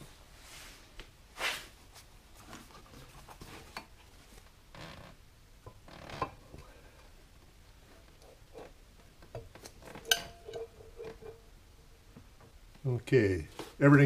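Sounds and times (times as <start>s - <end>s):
metal knocking and rubbing on metal: 8.1s - 11.5s.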